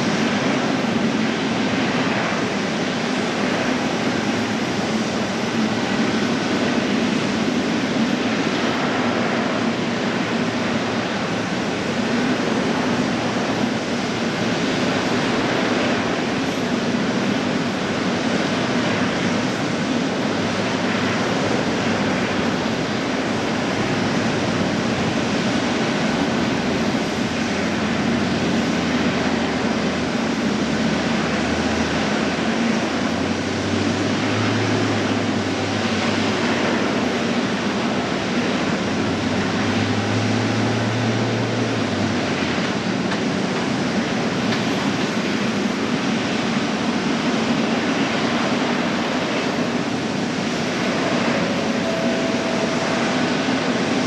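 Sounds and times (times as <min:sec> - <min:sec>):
jet engines running: 0:00.0 - 0:54.0
low hum: 0:50.2 - 0:54.0.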